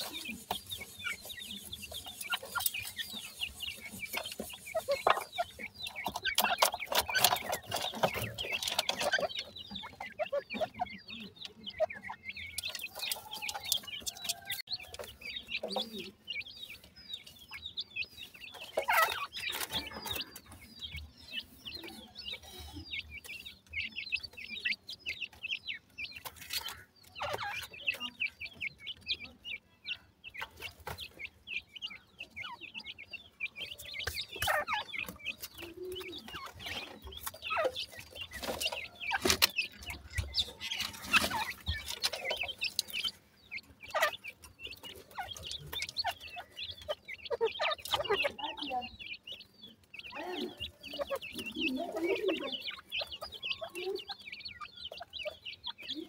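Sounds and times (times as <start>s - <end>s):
chicks chirping and peeping: 0.0s - 56.0s.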